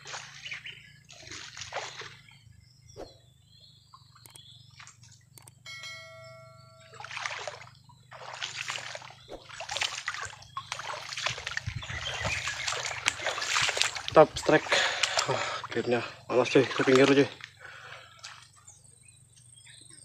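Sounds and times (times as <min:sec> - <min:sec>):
splashing at water surface: 0:00.0 - 0:02.2, 0:07.0 - 0:17.5
ringing tone: 0:05.4 - 0:07.8.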